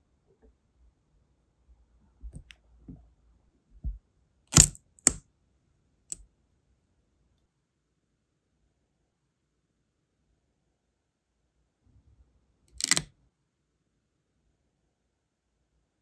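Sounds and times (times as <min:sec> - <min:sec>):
wax seal stamp clicks: 0:04.5 - 0:05.2, 0:12.7 - 0:13.1.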